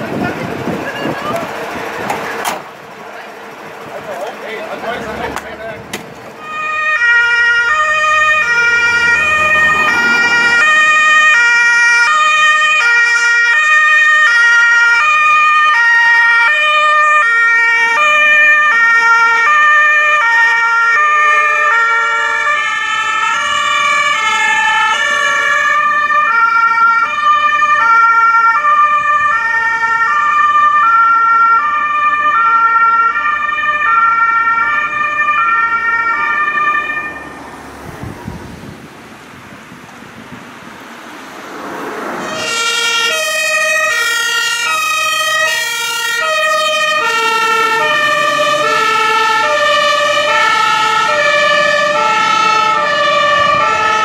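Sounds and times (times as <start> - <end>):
vehicle engine passing: 0.0 - 12.5, 34.8 - 54.0
two-tone emergency sirens: 6.4 - 38.6, 41.7 - 54.0.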